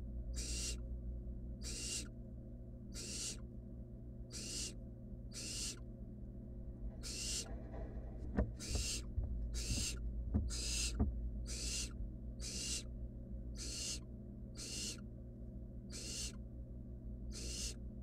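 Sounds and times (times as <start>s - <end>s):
steady low hum: 0.0s - 18.0s
owl chicks hissing begging calls: 0.4s - 0.8s, 1.6s - 2.1s, 2.9s - 3.4s, 4.3s - 5.8s, 7.0s - 7.5s, 8.6s - 12.9s, 13.6s - 15.1s, 15.9s - 16.4s, 17.3s - 17.8s.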